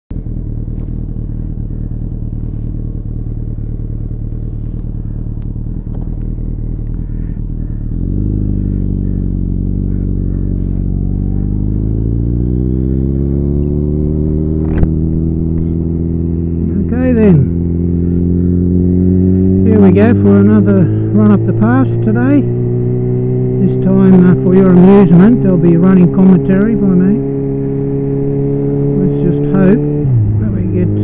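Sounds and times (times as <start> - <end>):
motorcycle engine idling and revving: 0.0 - 31.0.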